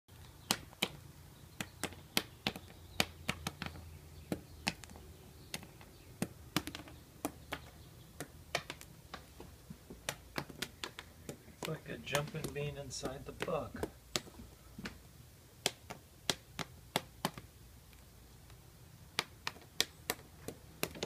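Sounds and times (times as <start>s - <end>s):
moth popping clicks: 0.2s - 9.2s, 10.0s - 15.0s.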